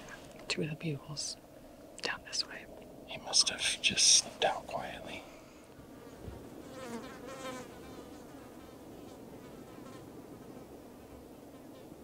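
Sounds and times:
flies buzzing: 0:03.1 - 0:10.6.

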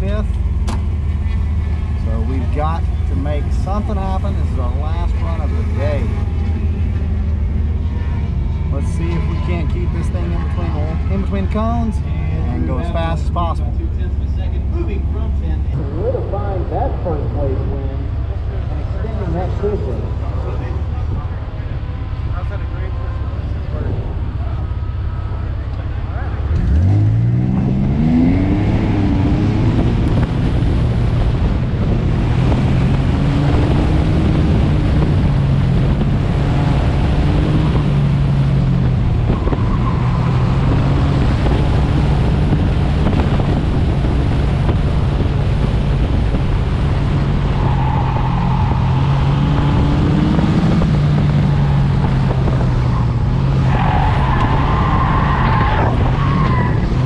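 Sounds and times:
car engine revving hard: 0:26.4 - 0:57.0
tyres squealing: 0:52.8 - 0:57.0.

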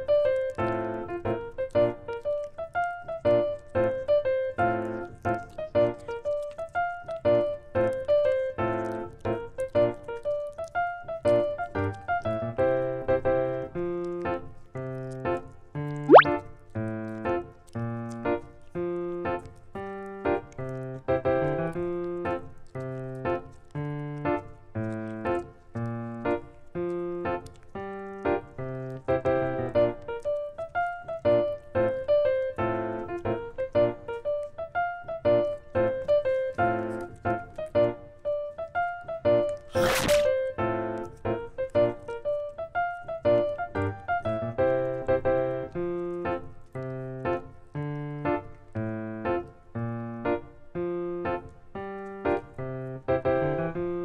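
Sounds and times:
piano-style keyboard tune: 0:40.3 - 0:54.0
piano music: 0:49.1 - 0:54.0.

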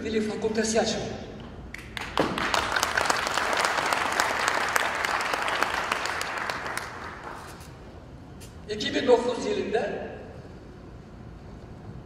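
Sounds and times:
audience applauding: 0:01.8 - 0:07.7.

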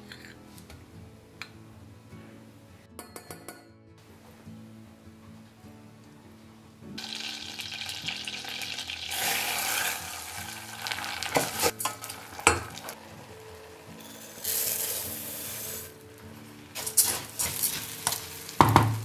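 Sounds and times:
butter and oil sizzling: 0:07.0 - 0:19.0.

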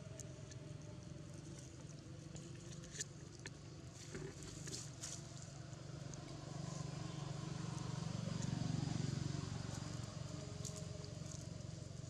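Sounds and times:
faint ticks: 0:00.0 - 0:04.1
distant vehicle engine drone: 0:00.0 - 0:12.0.

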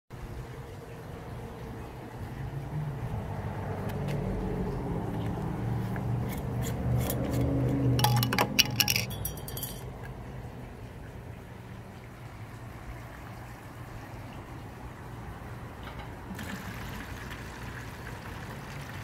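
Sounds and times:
metal lid scraping on glass jar: 0:06.2 - 0:09.9.

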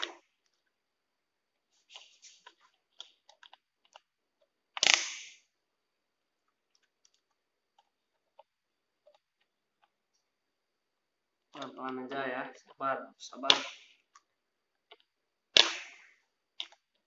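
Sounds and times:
plastic cover cracking: 0:14.9 - 0:16.9.

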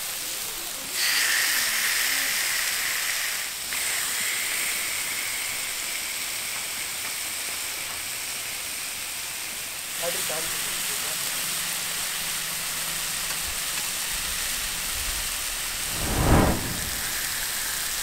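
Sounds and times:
fish sizzling in oil: 0:00.0 - 0:14.6.

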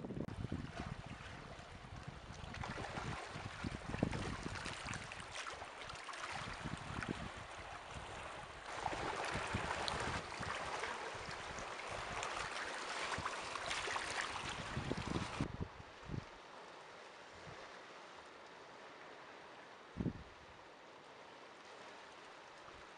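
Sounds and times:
wind rumbling on microphone: 0:00.0 - 0:16.4, 0:19.9 - 0:20.6
water lapping over pebbles: 0:00.6 - 0:15.4.

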